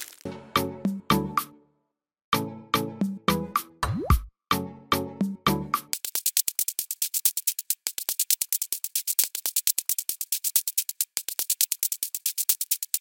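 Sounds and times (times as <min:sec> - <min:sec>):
electronic music with hi-hat ticks: 0:05.8 - 0:13.0.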